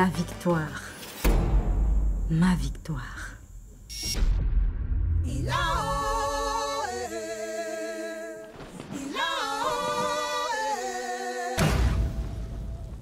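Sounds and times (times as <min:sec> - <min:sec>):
low rumble: 0:01.5 - 0:06.6.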